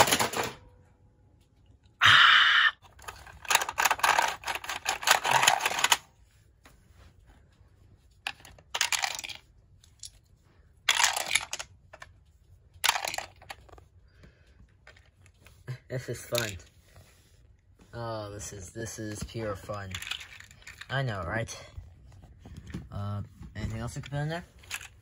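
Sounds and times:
plastic toys rattling and clicking: 0.0 - 0.7, 2.8 - 6.2, 8.0 - 17.1, 18.3 - 25.0.

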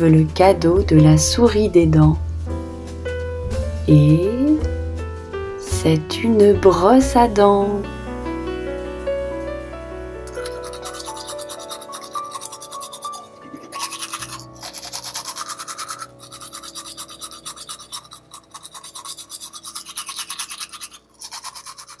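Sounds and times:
toothbrush scrubbing: 10.3 - 22.0.

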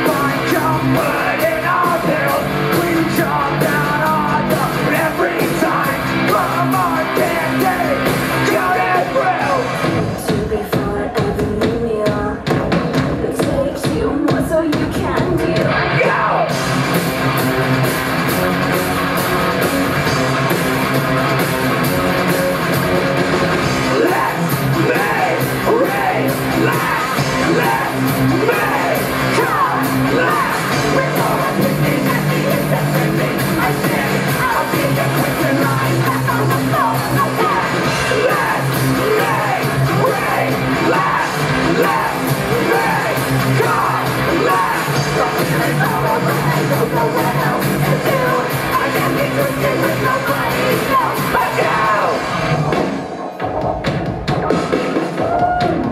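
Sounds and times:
bass guitar: 0.0 - 11.8, 15.1 - 55.9
drums: 0.0 - 55.9
people singing and shouting: 0.0 - 55.9.

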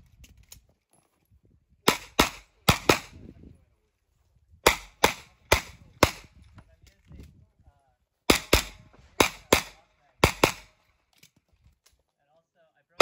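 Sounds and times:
carbine gunshots: 1.9 - 3.2, 4.6 - 6.3, 8.3 - 10.8.

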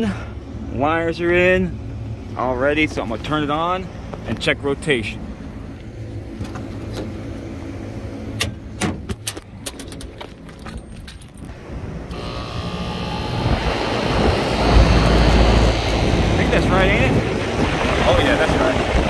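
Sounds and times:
condenser fan rushing air: 11.5 - 19.0.

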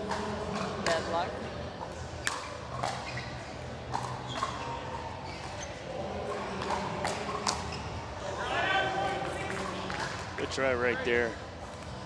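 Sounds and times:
crowd noise: 0.0 - 12.0
ball bouncing on court: 1.8 - 7.9.

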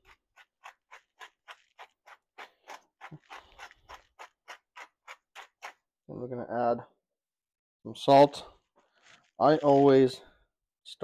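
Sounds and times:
pepper grinder crunching: 0.0 - 5.9.

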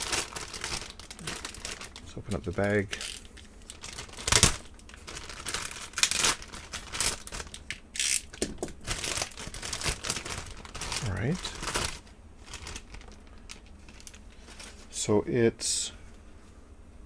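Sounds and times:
plastic bag crinkling and tearing: 0.0 - 14.9.

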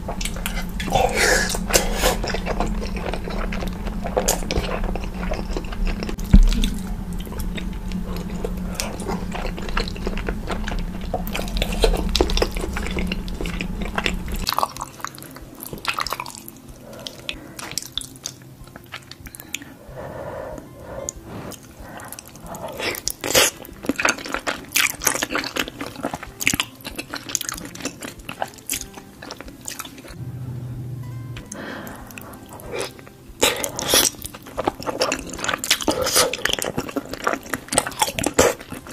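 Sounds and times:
wet chewing: 0.0 - 30.2, 31.5 - 38.9
low background hum: 0.0 - 38.9.

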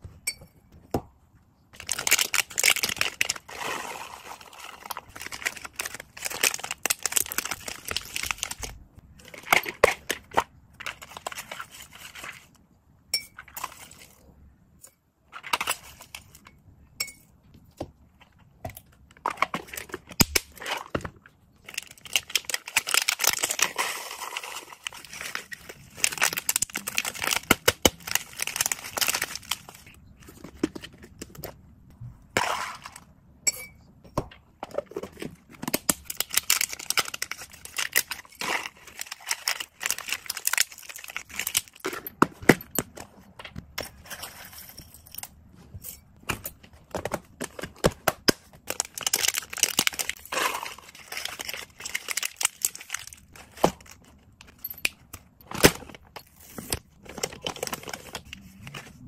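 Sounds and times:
plastic packaging crinkling: 1.8 - 12.5, 19.3 - 31.0, 35.1 - 41.9, 48.5 - 54.6.

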